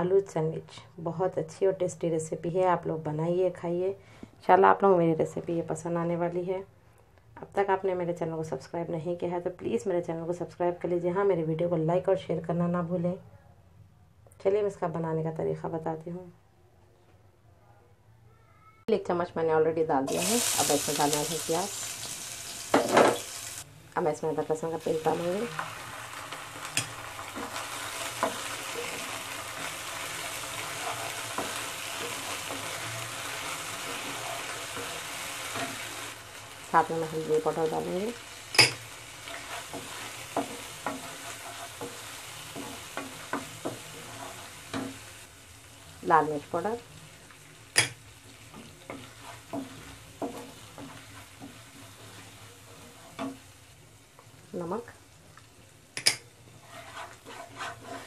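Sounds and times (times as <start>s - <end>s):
onions sizzling in oil: 20.0s - 58.0s
wooden spatula scraping a pan: 25.0s - 36.2s, 39.0s - 45.2s, 48.4s - 53.5s, 56.4s - 58.0s.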